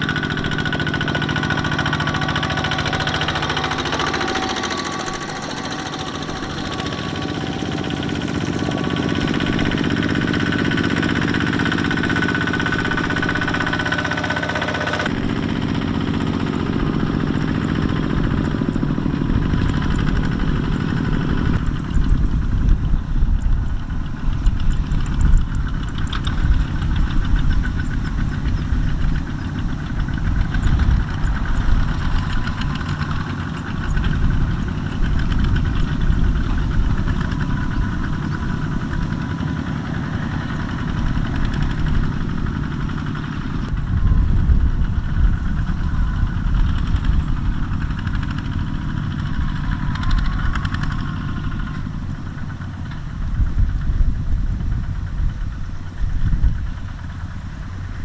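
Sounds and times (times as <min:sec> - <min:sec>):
diesel tractor engines chugging: 0:00.0 - 0:58.0.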